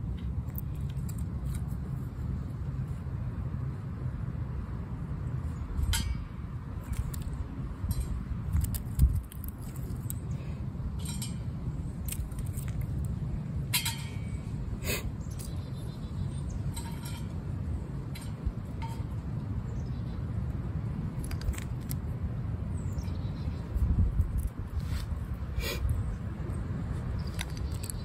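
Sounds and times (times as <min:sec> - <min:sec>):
wind buffeting microphone: 0:05.6 - 0:20.0, 0:22.5 - 0:28.0.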